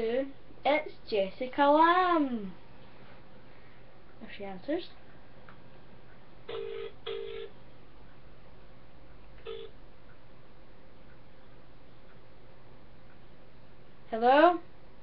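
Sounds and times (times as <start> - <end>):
phone ringback tone: 6.5 - 7.6, 9.4 - 9.8.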